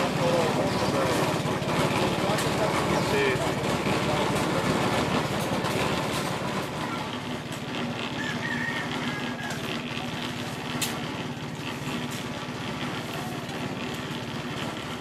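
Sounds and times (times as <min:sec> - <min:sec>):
engine running: 0:00.0 - 0:15.0.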